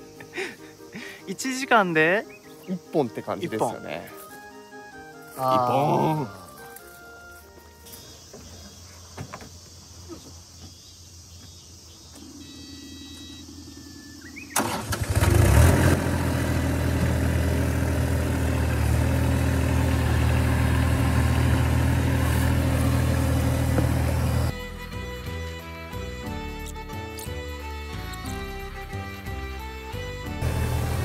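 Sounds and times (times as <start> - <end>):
excavator diesel engine starting: 14.4 - 24.6, 30.3 - 31.0.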